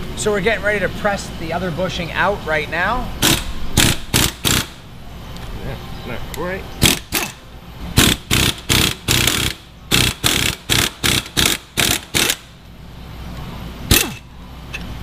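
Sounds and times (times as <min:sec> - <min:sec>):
impact wrench bursts: 0:03.2 - 0:04.9, 0:06.8 - 0:07.4, 0:08.0 - 0:12.6, 0:13.8 - 0:14.3.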